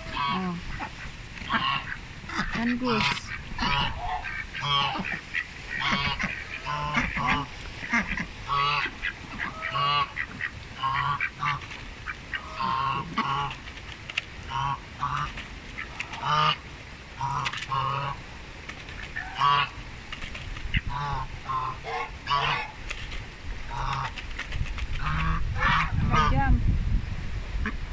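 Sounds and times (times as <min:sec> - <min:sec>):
ducks and goose honking quacks: 0:00.0 - 0:13.6, 0:14.4 - 0:16.6, 0:17.2 - 0:18.2, 0:19.0 - 0:19.8, 0:20.7 - 0:22.8, 0:23.7 - 0:24.2, 0:25.0 - 0:26.5.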